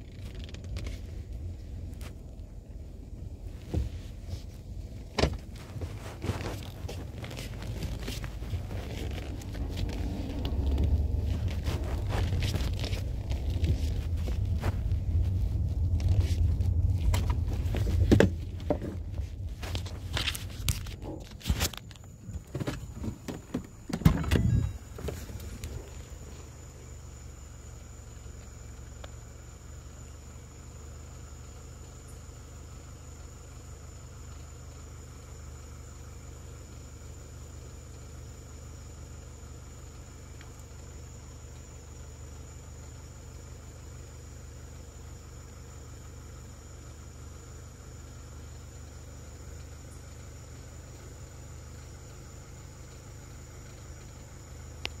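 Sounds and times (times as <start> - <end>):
vehicle engine idling: 0.0 - 55.0
faint thin high tone: 24.2 - 25.0.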